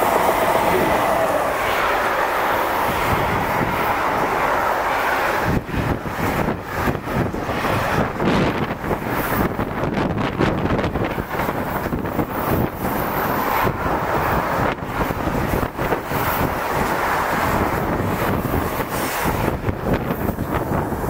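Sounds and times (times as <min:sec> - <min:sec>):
train wheels rumbling on rail: 0:00.0 - 0:21.0.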